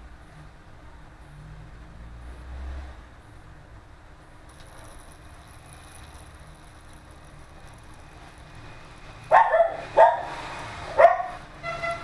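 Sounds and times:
faint steady background: 0.0s - 12.0s
dog barking: 9.3s - 11.4s.

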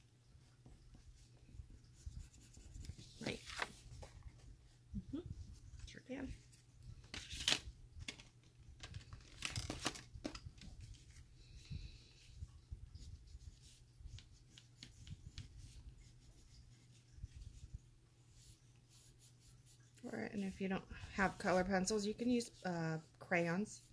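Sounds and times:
pencil scratching on paper: 0.6s - 3.4s, 13.0s - 17.7s, 18.3s - 23.9s.

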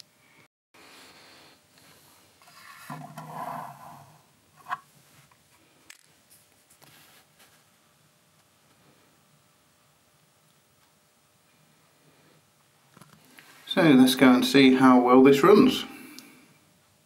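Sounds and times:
rubbing and scraping: 2.4s - 4.8s.

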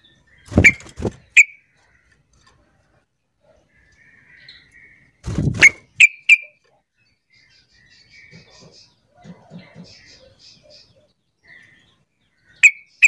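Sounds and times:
wing flutter: 0.4s - 1.4s, 5.2s - 5.9s.

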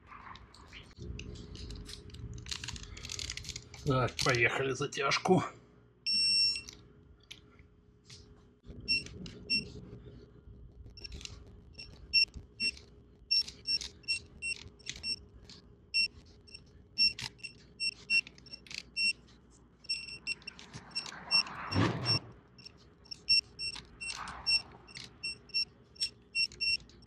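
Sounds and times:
ratchet clicks: 11.0s - 15.2s, 16.0s - 19.2s, 19.9s - 27.0s.

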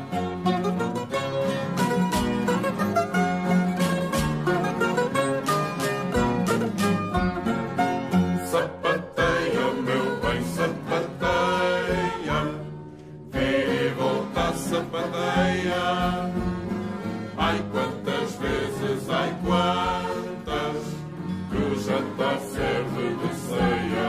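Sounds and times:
group of voices singing: 8.3s - 24.0s.

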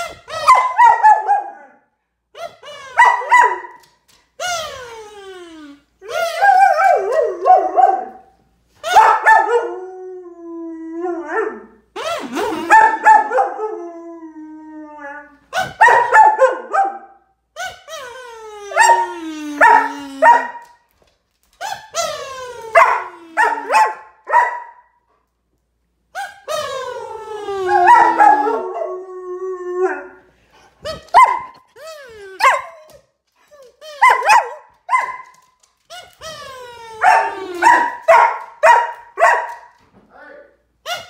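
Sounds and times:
dog yipping: 0.3s - 1.5s, 2.4s - 3.9s, 30.8s - 39.7s
dog whining and howling: 2.4s - 8.2s, 8.8s - 15.8s, 17.6s - 20.7s, 26.2s - 35.1s, 36.0s - 38.2s.

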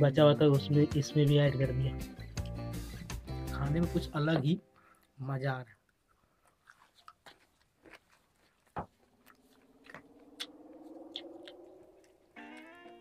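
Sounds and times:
man chewing food: 2.2s - 3.0s, 5.8s - 13.0s
soft mouth clicks: 5.8s - 8.2s, 9.2s - 13.0s.

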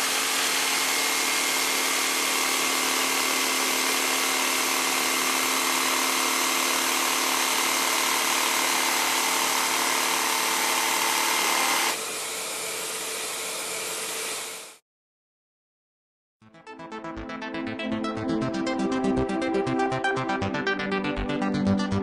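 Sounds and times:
jigsaw cutting wood: 0.0s - 14.8s.

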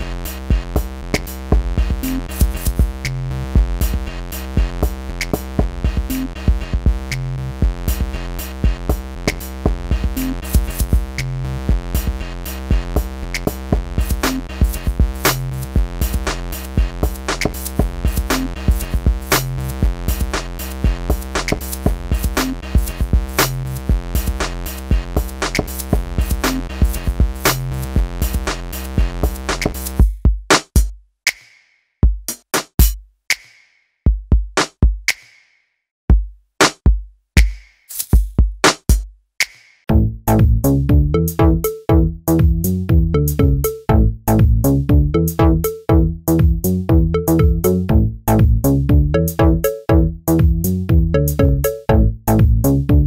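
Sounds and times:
drum machine beat: 0.0s - 31.0s, 32.0s - 33.5s, 34.1s - 35.3s, 36.1s - 53.0s
held synth notes: 39.9s - 53.0s.

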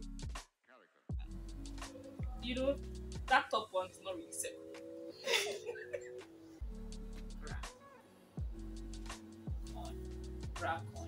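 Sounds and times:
deep kick drums: 1.1s - 3.4s, 6.6s - 7.7s, 8.4s - 10.8s
held chords: 1.2s - 11.0s.

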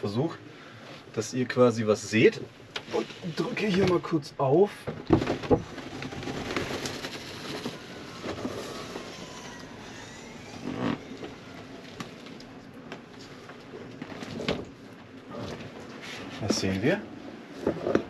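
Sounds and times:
canvas walls rustling: 0.0s - 18.0s
knocks of roof opening: 4.9s - 9.2s.

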